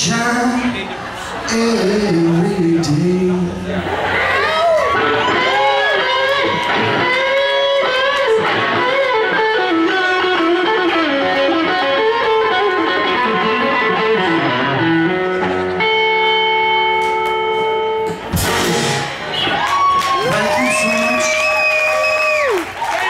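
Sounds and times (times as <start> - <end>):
live blues band: 0.0 - 23.0
electric guitar run: 5.0 - 19.3.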